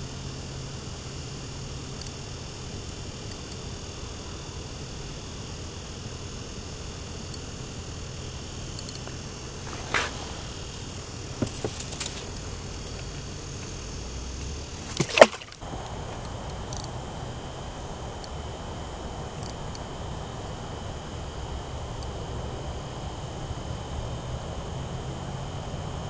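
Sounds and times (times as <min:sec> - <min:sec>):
faint ticks: 0:02.0 - 0:02.2.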